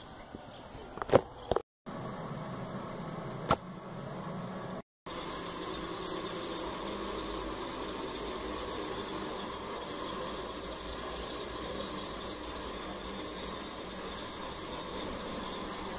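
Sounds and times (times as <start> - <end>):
steady hiss: 5.1 - 15.9.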